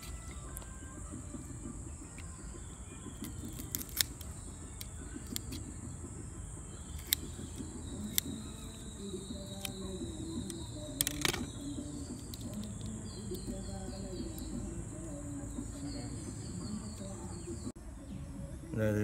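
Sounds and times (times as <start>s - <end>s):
scissors snipping clicks: 3.2s - 5.6s, 6.9s - 13.6s.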